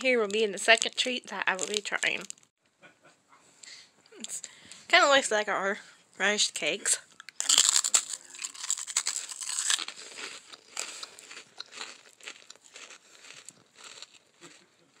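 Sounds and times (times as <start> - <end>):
chewing crunchy cracker: 0.2 - 2.5, 7.1 - 15.0.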